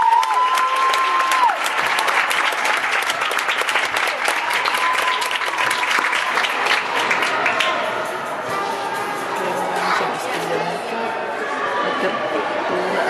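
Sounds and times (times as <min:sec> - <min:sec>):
audience clapping: 0:00.0 - 0:08.4.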